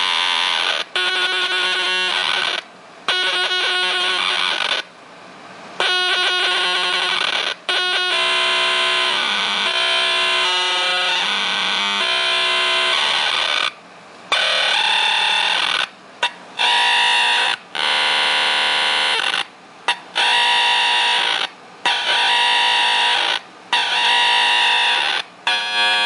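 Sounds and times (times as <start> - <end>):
distorted buzzy keyboard drone: 0.0 - 26.0.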